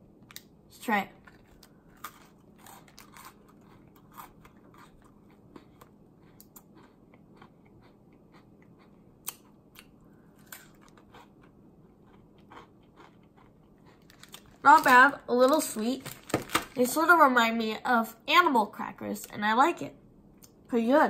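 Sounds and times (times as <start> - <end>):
person chewing a crunchy biscuit: 1.2 - 14.8.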